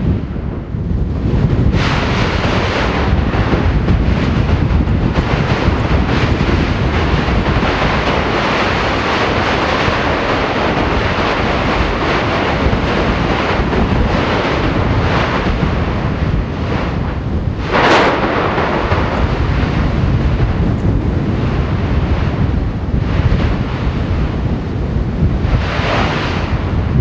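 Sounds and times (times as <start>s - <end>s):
volcano eruption rushing: 0.0s - 27.0s.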